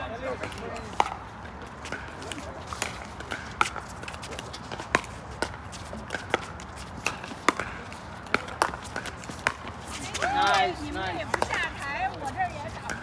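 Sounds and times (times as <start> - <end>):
paddles hitting plastic ball: 1.8 - 12.2.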